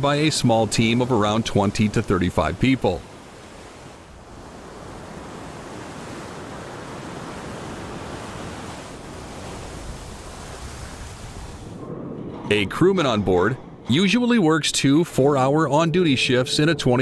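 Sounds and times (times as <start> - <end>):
sea waves: 0.0 - 17.0
wind: 0.0 - 17.0.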